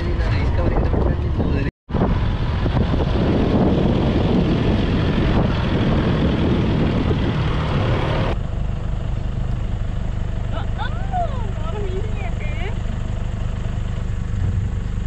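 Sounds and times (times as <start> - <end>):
jeep engine running: 0.0 - 15.0.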